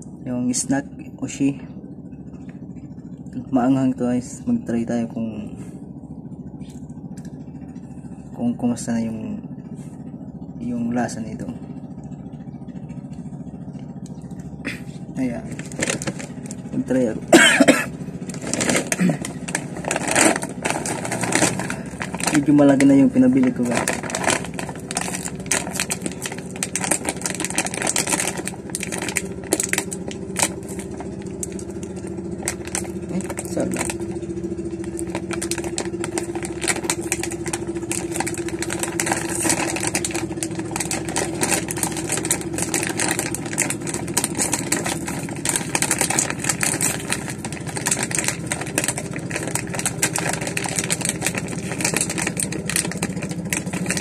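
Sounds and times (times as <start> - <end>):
motor engine humming: 0.0 - 54.0
plastic snack bag crinkling: 15.4 - 16.9, 18.2 - 54.0.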